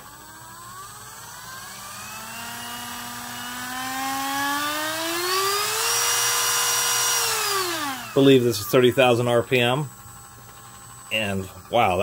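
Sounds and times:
rotary tool motor whine: 0.0 - 12.0.

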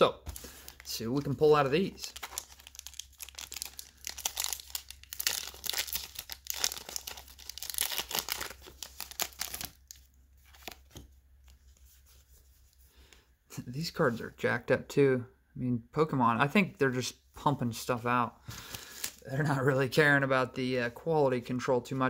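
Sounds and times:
foil wrapper crinkling and tearing: 0.3 - 10.9.

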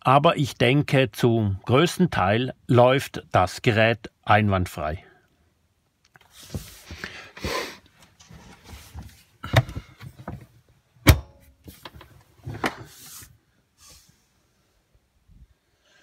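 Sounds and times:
knocks and rustles: 8.0 - 13.1.

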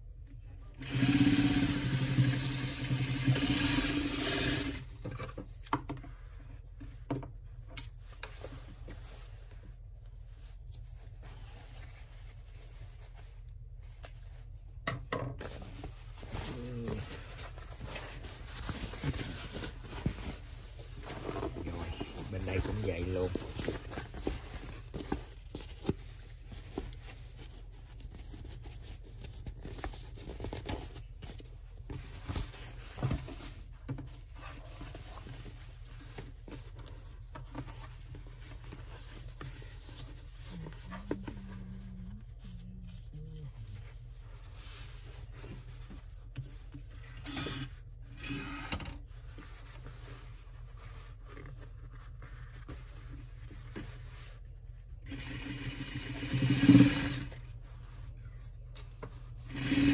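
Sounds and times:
canvas fabric rustling: 15.5 - 47.0.

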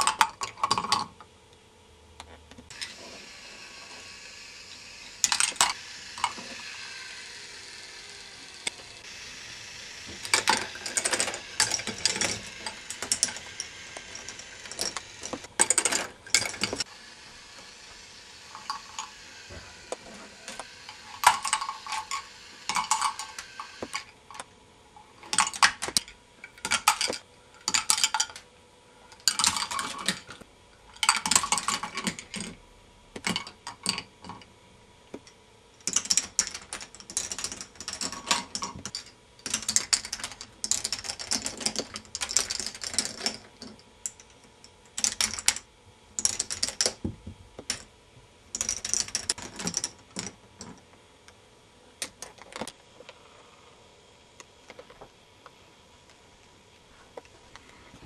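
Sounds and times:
faint steady hum: 0.0 - 58.0
plastic balls clattering through track: 10.1 - 16.9, 18.5 - 24.1, 25.2 - 28.4, 29.2 - 30.4, 31.0 - 32.6, 35.8 - 44.2, 44.9 - 45.6, 46.2 - 47.0, 48.6 - 50.8.

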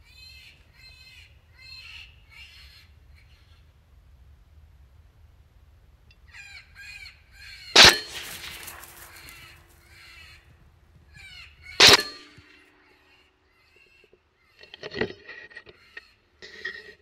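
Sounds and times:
rifle shots with echo: 7.8 - 9.9.

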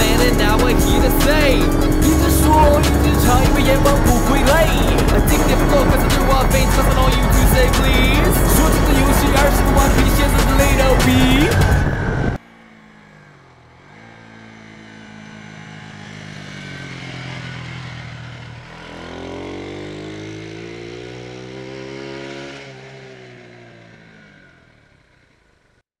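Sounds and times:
motorcycle riding past: 0.0 - 25.3.

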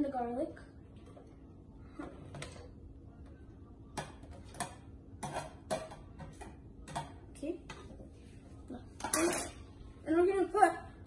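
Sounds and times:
metal spoon scraping a plate: 4.6 - 6.4, 9.0 - 9.6.

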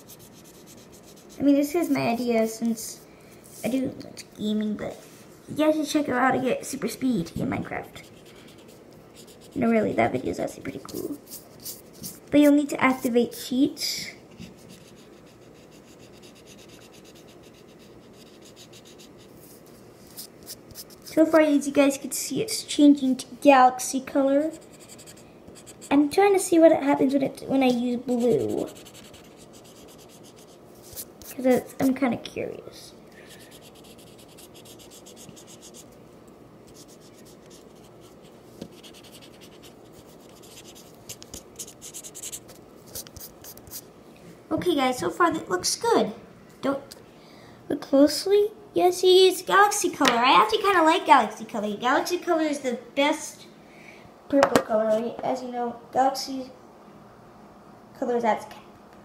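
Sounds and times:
marker scribbling on paper: 0.0 - 2.2, 7.8 - 9.8, 10.7 - 13.5, 14.4 - 21.4, 24.4 - 26.0, 28.1 - 32.0, 33.3 - 35.9, 36.7 - 43.8.

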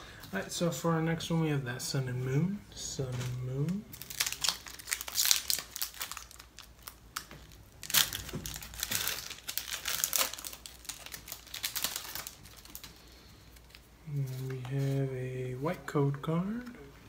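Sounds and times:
foil wrapper crinkling and tearing: 3.1 - 15.0.

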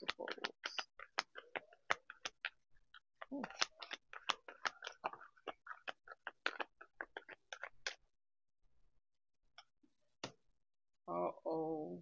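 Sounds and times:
cards being shuffled: 0.0 - 8.0.

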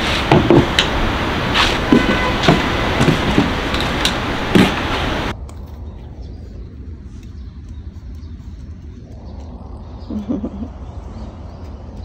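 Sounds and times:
wooden chairs clacking: 0.0 - 5.3
loud steady rushing noise: 0.0 - 5.4.

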